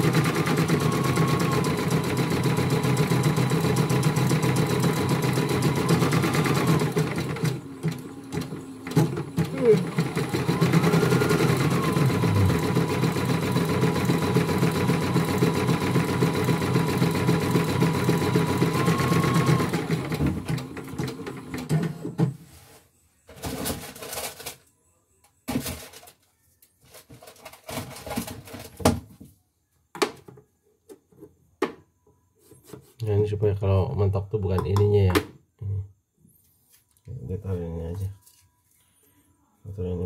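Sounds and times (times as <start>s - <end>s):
embroidery machine stitching: 0.0s - 22.0s.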